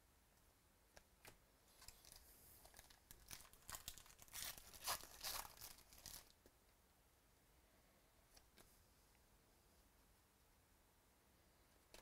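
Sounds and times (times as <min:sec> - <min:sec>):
foil wrapper tearing and crinkling: 0:02.7 - 0:06.3.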